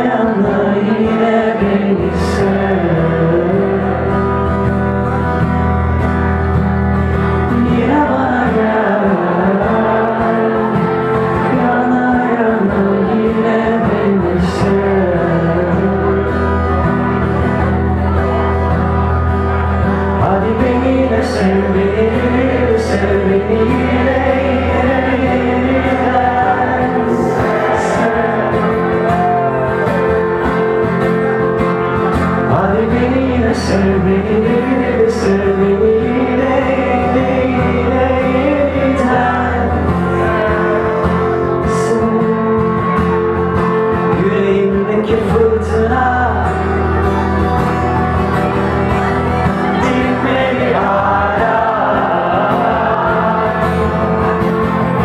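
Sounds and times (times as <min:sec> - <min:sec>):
man singing pop ballad: 0:00.0 - 0:04.6, 0:07.3 - 0:16.7, 0:20.2 - 0:30.0, 0:32.4 - 0:47.0, 0:49.6 - 0:54.3
strummed acoustic guitar: 0:00.0 - 0:55.0.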